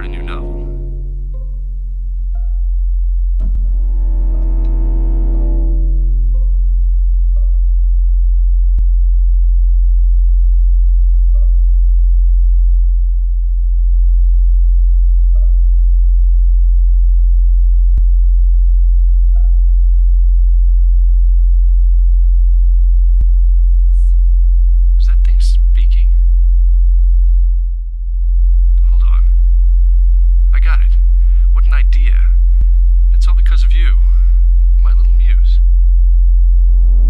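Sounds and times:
short ringing note: 0.0 - 1.8, 3.4 - 6.9
deep synthesized drone: 0.0 - 37.0.

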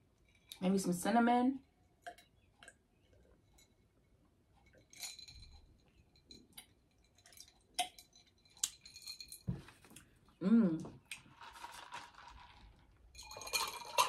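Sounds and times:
cup and utensils clinking: 13.1 - 14.0.

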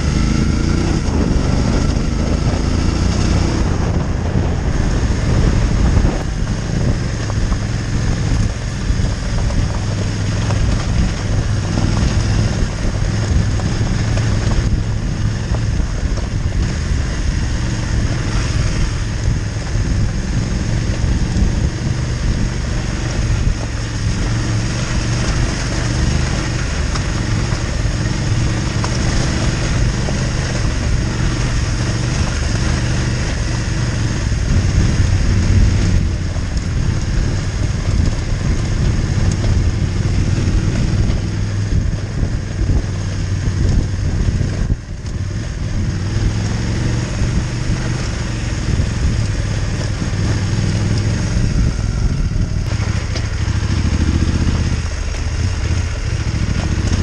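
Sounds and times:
motorcycle engine running: 0.0 - 57.0
wind on microphone: 0.0 - 57.0.

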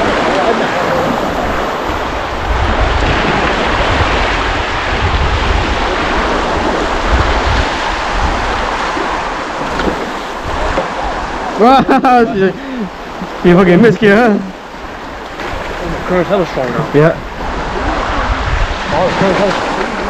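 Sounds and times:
wind buffeting microphone: 0.0 - 11.6, 14.6 - 20.0
ocean water washing: 0.0 - 20.0.

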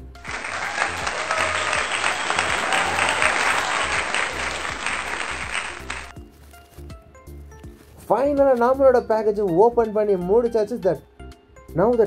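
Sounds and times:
crowd clapping: 0.0 - 6.1
faint background music: 0.0 - 12.0.

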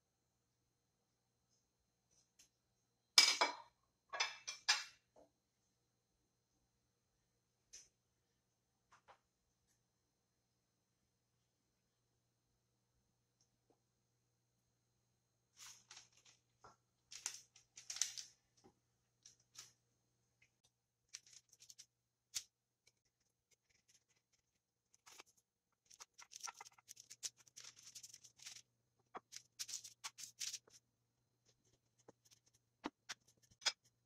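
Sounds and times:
parchment paper rustling: 15.6 - 19.9, 20.5 - 30.8, 31.4 - 34.0.

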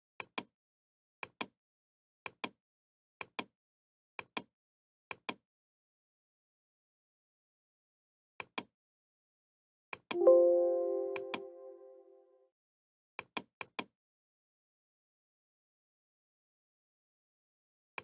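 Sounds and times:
computer mouse clicking: 8.4 - 8.7.

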